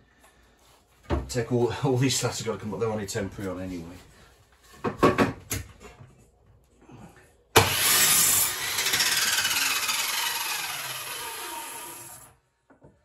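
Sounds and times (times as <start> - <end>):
electric sander motor: 7.6 - 12.3.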